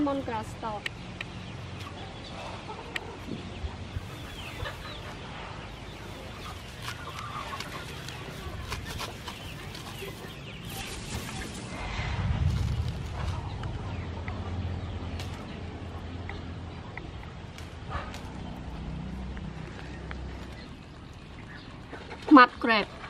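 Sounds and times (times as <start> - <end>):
chickens clucking: 0.2 - 11.7, 13.1 - 23.0
leaves rustling: 3.9 - 14.1.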